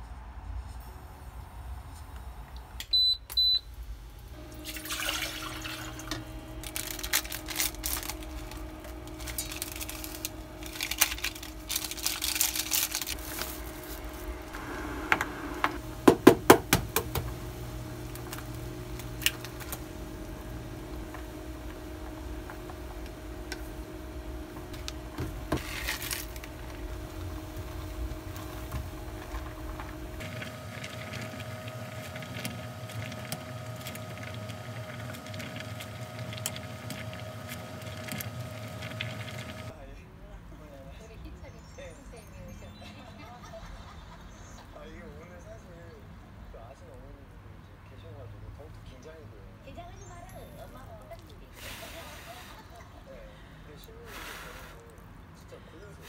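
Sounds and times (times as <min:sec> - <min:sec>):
electric hum: 0:00.9 - 0:39.8
running water: 0:04.4 - 0:06.7.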